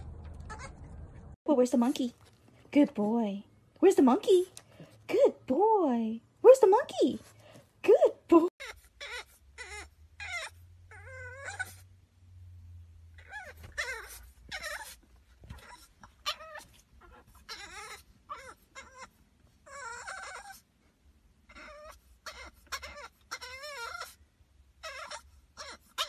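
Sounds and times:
puppy whining and yowling: 0:00.3 - 0:01.0, 0:08.6 - 0:12.0, 0:13.2 - 0:20.7, 0:21.4 - 0:26.0.

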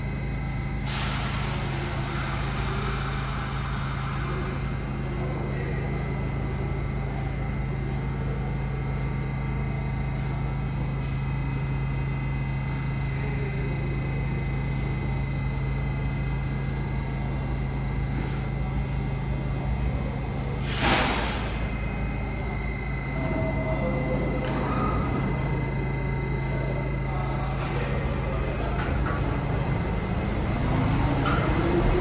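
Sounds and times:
subway train hum and whine: 0:00.0 - 0:32.0
air brake hiss: 0:00.8 - 0:04.8, 0:18.1 - 0:18.6, 0:20.6 - 0:21.7.

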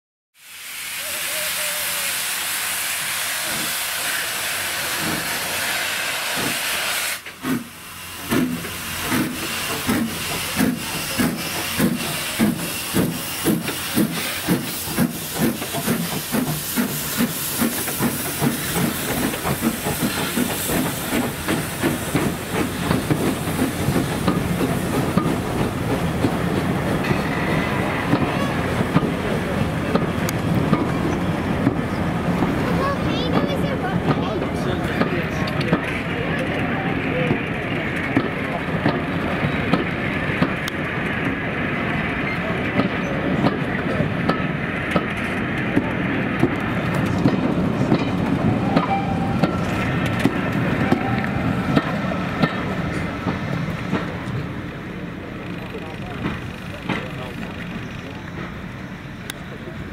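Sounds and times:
steam hissing: 0:00.4 - 0:33.2
steam locomotive chuffing: 0:00.4 - 0:59.9.

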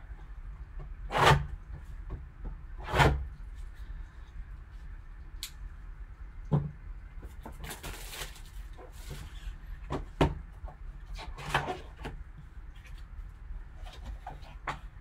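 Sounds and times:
plastic wrap crinkling and tearing: 0:07.5 - 0:09.4.

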